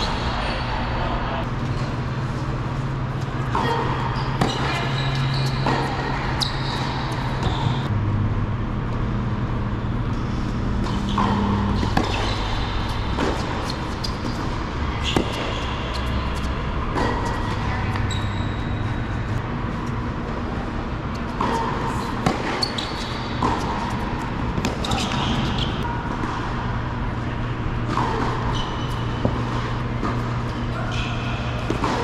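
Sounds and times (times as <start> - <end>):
tennis balls struck and bouncing: 10.7 - 18.2, 21.1 - 26.8, 31.4 - 32.0.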